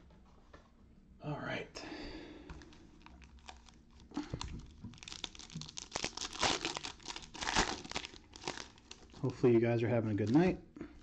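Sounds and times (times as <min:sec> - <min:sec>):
foil wrapper crinkling and tearing: 0:02.6 - 0:09.6.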